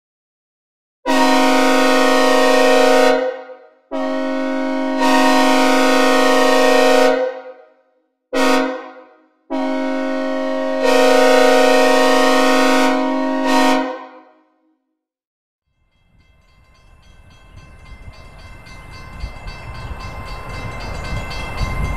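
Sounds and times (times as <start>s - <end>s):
locomotive air horn blasts: 1.1s - 7.7s, 8.4s - 14.5s.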